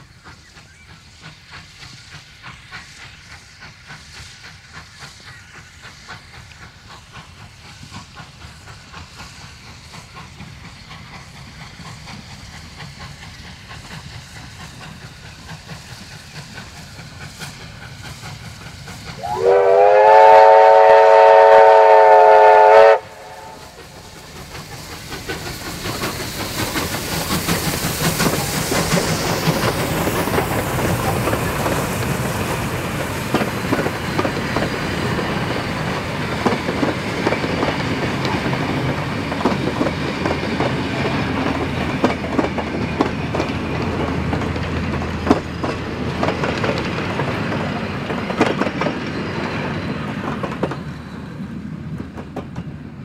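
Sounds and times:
steam train working hard: 0.0s - 53.0s
steam whistle chord: 19.2s - 23.8s
wheels clicking over rail joints: 23.7s - 52.9s.

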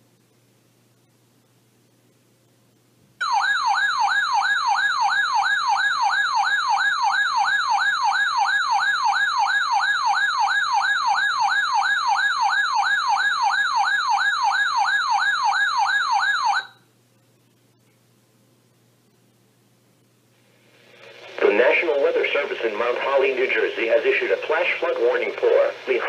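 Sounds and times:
electronic siren alarm sweeping: 3.2s - 16.8s.

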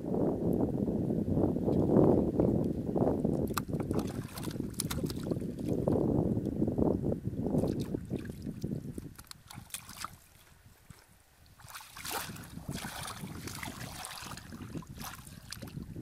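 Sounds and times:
splashing in shallow muddy water: 3.3s - 5.9s, 7.6s - 16.0s.

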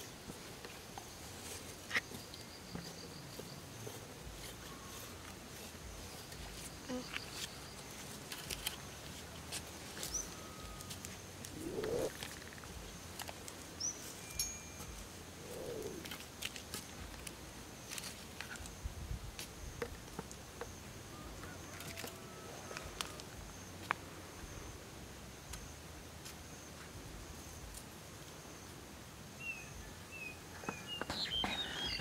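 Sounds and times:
hoe working soil: 0.2s - 18.8s
birds chirping: 9.7s - 16.4s, 29.4s - 32.0s
low rising and falling calls: 10.0s - 12.7s, 14.5s - 16.2s.

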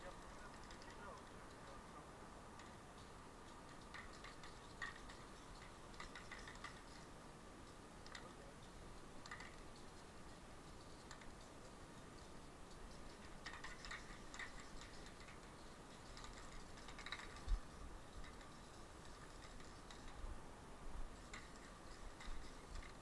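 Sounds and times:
light clicks: 2.6s - 20.2s.

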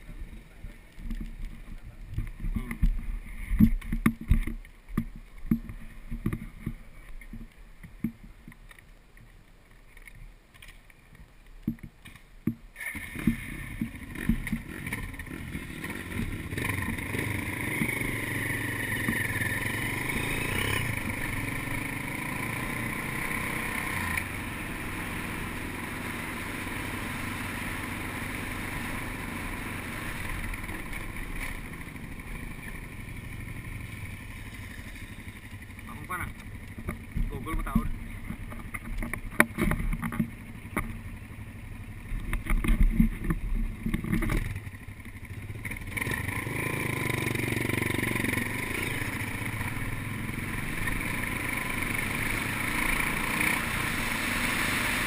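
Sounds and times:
motorcycle engine riding: 0.0s - 55.0s
motorcycle engine rumble: 0.0s - 55.0s.

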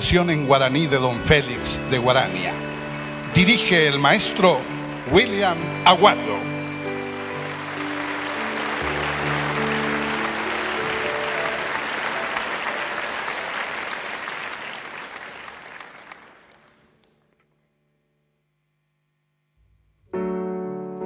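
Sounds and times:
background music held notes: 0.0s - 15.9s, 20.1s - 21.0s
audience applauding: 0.6s - 17.2s.

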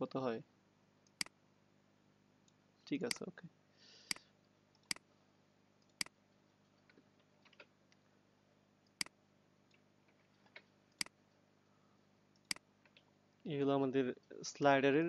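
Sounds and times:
computer mouse clicks: 1.1s - 1.3s, 4.8s - 5.0s, 5.8s - 6.2s, 8.9s - 9.2s, 10.1s - 11.2s, 12.4s - 13.1s.

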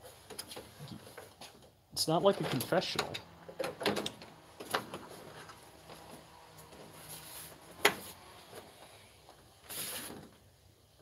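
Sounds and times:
cloth rubbing on microphone: 6.9s - 8.8s.

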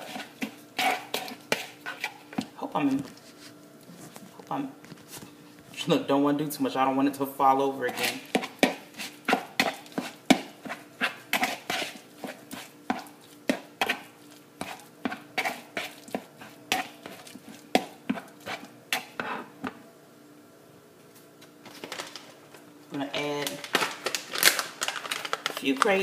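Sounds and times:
spoon scraping plastic bowl: 0.0s - 2.4s, 7.9s - 19.5s.

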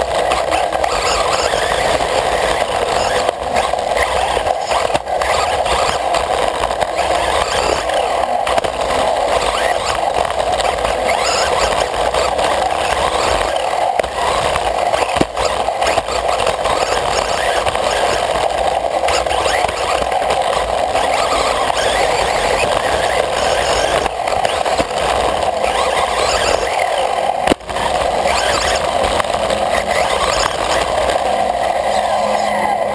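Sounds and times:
faint motor whine: 0.0s - 32.9s
rattling drivetrain and tyre noise: 0.0s - 32.9s.

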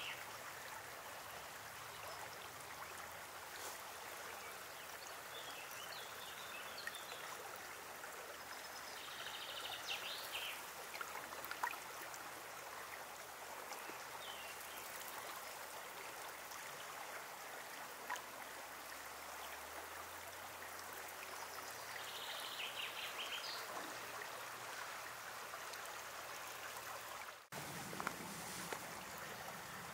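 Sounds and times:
river water rushing: 23.8s - 29.9s.

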